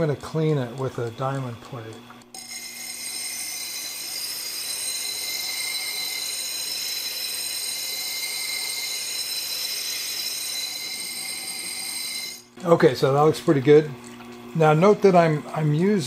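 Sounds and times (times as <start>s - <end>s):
plate scraping grinding wheel: 0.0s - 12.8s.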